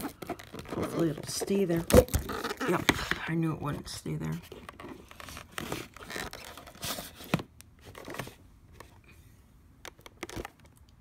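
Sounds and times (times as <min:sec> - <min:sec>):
camera handling rustling and scraping: 0:00.0 - 0:03.2, 0:04.4 - 0:09.0.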